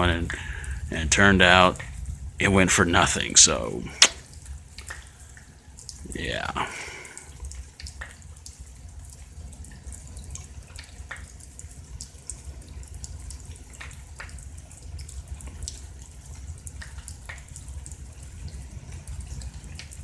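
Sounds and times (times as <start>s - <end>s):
low background noise: 0.0s - 20.0s
rain drips ticking: 0.0s - 20.0s.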